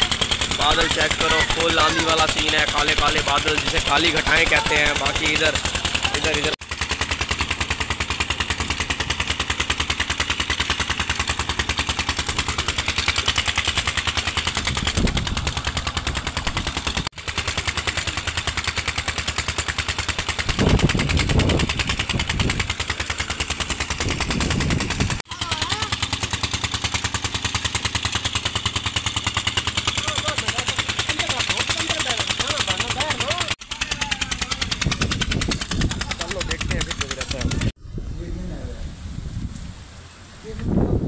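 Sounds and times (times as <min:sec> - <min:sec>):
diesel pump engine chugging: 0:00.0 - 0:37.8
wind buffeting microphone: 0:14.5 - 0:16.6, 0:20.4 - 0:22.8, 0:24.0 - 0:25.2, 0:34.6 - 0:41.0.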